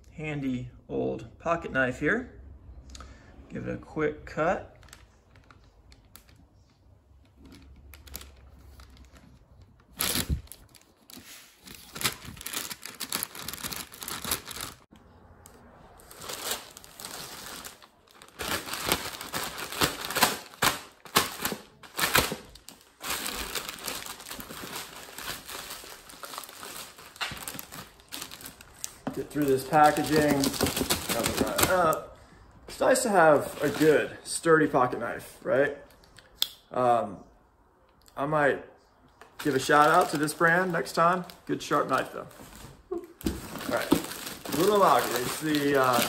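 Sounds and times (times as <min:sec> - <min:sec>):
plastic bag crinkling and tearing: 0:07.4 - 0:14.9, 0:16.0 - 0:32.0, 0:33.4 - 0:34.0, 0:39.4 - 0:46.0
knife slitting plastic bag: 0:43.5 - 0:46.0.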